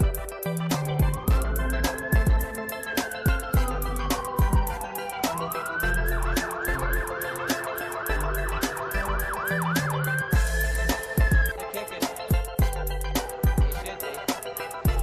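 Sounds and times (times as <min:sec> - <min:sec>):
hip hop beat: 0:00.0 - 0:15.0
police siren wail and yelp: 0:01.2 - 0:11.6.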